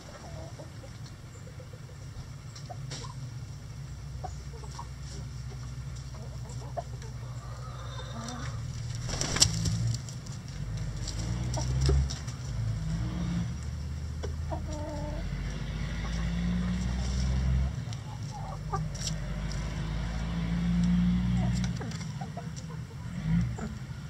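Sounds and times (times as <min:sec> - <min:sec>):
chickens clucking: 0:00.0 - 0:12.8, 0:13.6 - 0:24.0.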